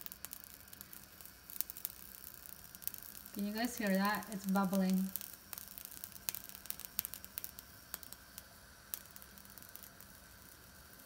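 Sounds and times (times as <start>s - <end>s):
pops and crackles over hiss: 0.0s - 11.0s
stew bubbling in a covered pan: 0.0s - 11.0s.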